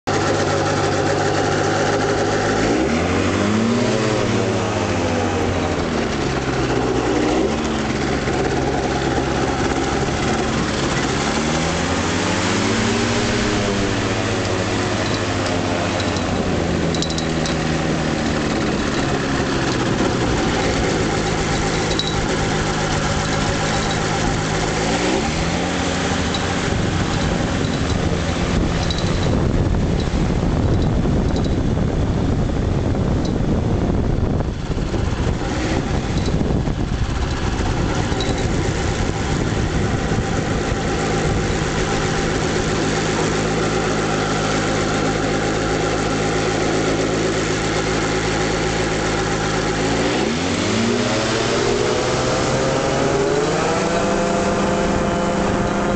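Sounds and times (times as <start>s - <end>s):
microlight engine revving: 0.0s - 55.9s.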